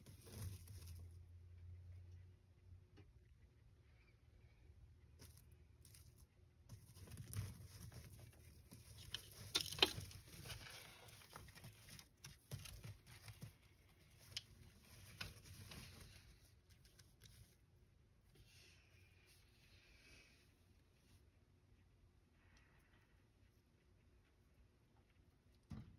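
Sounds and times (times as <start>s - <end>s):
faint clicks and rustling: 5.1s - 17.8s.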